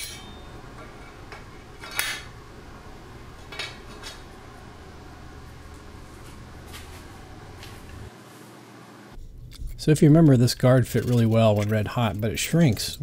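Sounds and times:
metal sword parts clinking: 0:00.0 - 0:00.4.

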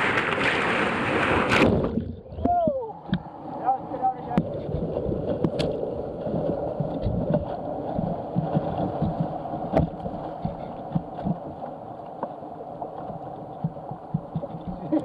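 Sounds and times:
water splashing: 0:00.0 - 0:15.0
rushing whitewater: 0:02.4 - 0:15.0
thumps against boat: 0:06.8 - 0:11.5, 0:13.0 - 0:15.0.

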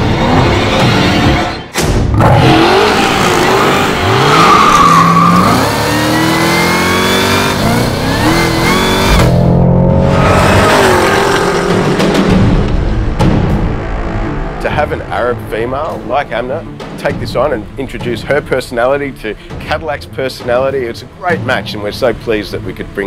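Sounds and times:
car engine accelerating hard: 0:02.1 - 0:12.8.

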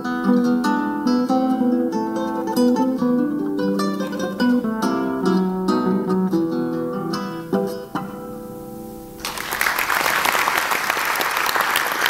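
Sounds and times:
tango on guitar and cello: 0:00.0 - 0:09.2
audience applause: 0:09.2 - 0:12.0.

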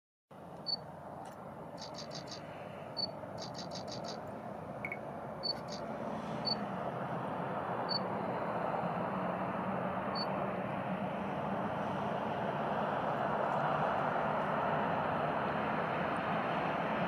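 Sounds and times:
distant jet rumble: 0:00.4 - 0:17.0
short high chirps: 0:01.8 - 0:02.4, 0:03.0 - 0:04.2, 0:04.8 - 0:05.8.

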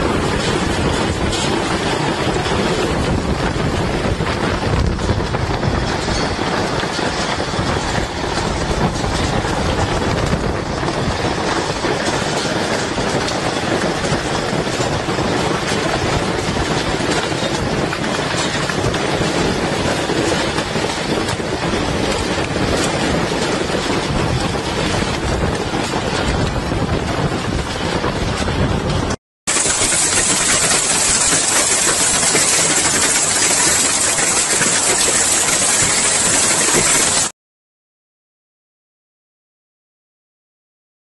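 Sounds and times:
heavy rain pouring: 0:00.0 - 0:37.3
hail hitting ground and car: 0:29.5 - 0:37.3
torrential rain: 0:29.5 - 0:37.3.

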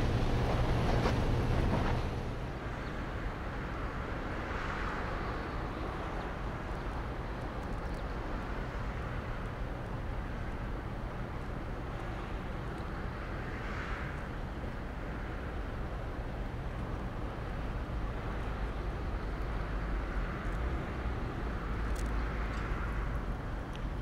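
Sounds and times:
boat diesel engine rumble: 0:00.0 - 0:03.5
harbour noise hiss: 0:00.0 - 0:24.0.

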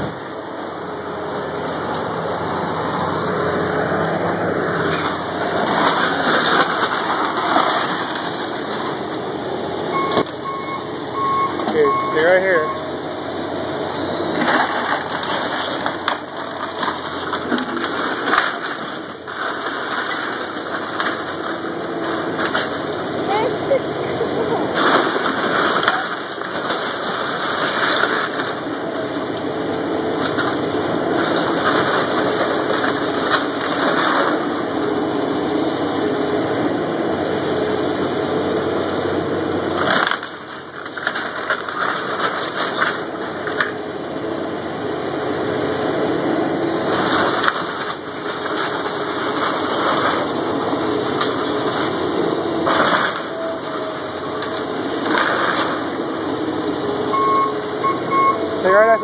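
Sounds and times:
excavator diesel engine: 0:00.0 - 0:59.0
wood cracking and splintering: 0:03.2 - 0:09.4, 0:14.3 - 0:23.8, 0:24.4 - 0:35.0, 0:39.6 - 0:43.9, 0:46.7 - 0:56.1.

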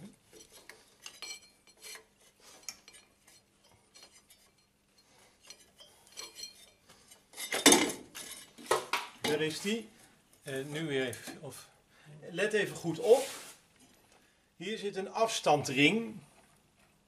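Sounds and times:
metallic clinks and scrapes: 0:00.2 - 0:11.4.

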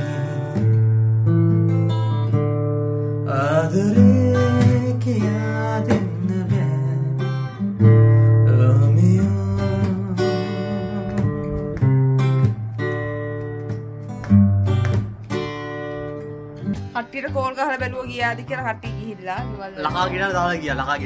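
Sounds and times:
man singing: 0:00.0 - 0:00.8, 0:03.2 - 0:07.6, 0:08.4 - 0:11.8
acoustic guitar: 0:00.0 - 0:21.0.

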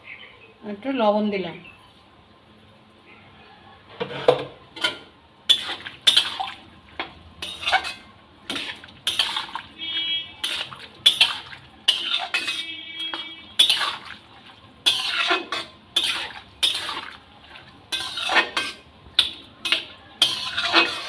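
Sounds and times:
metal spatula scraping a pan: 0:04.0 - 0:14.1, 0:14.8 - 0:17.2, 0:17.9 - 0:21.0.

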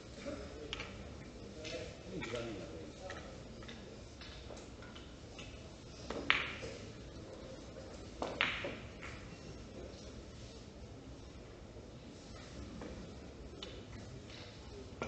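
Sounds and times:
billiard balls clicking: 0:08.1 - 0:09.3.

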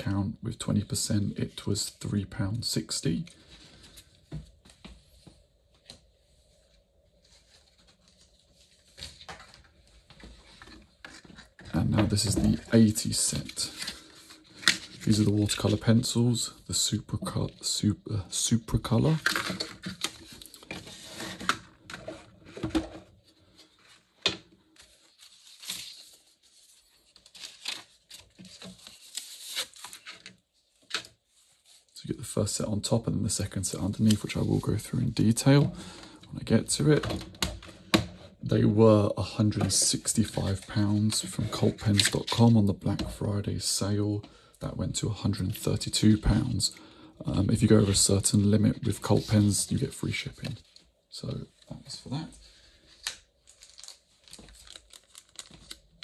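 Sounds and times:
paper rustling and sliding: 0:19.0 - 0:32.0.

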